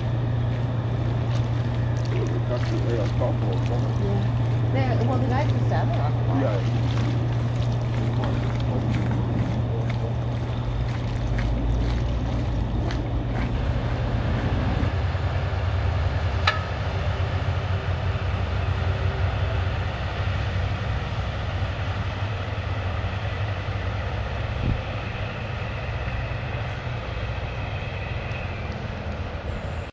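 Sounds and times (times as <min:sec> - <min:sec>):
boat diesel engine running: 0:00.0 - 0:29.9.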